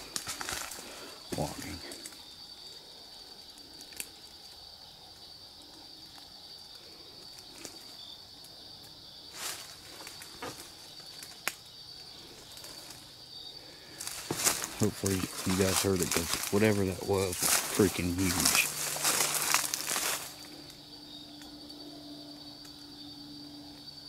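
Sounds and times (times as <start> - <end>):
snaps and crunches in brush: 0.0 - 2.2, 14.0 - 20.5
night insects chorus: 0.0 - 24.0.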